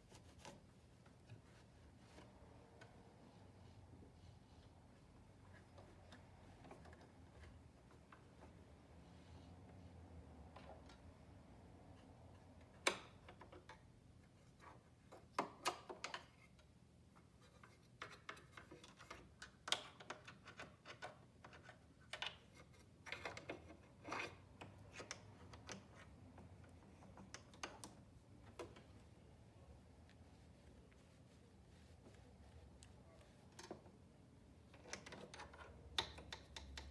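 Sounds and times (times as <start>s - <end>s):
small brush scratching and clicking: 17.2s - 36.9s.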